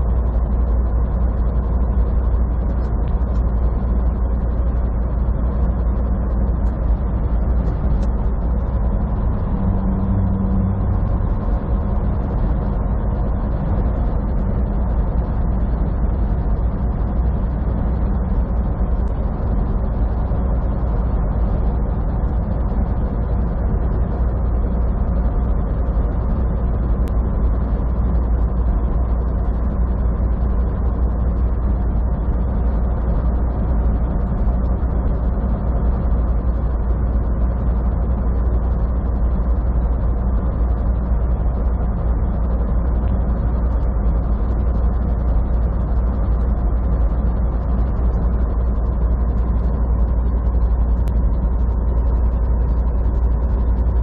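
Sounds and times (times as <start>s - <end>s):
truck engine drone: 0.0s - 54.0s
road noise: 7.0s - 18.0s.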